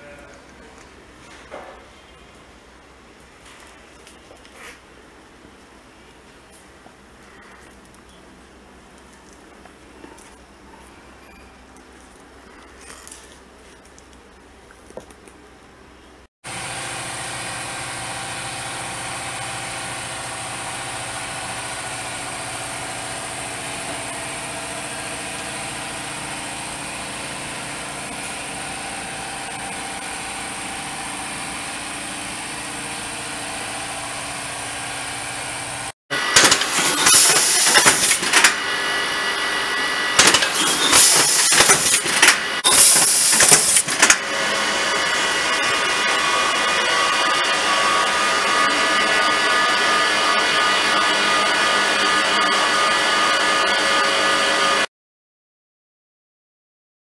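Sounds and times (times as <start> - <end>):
machinery humming: 16.5 - 54.9
drill boring into wood: 36.1 - 54.9.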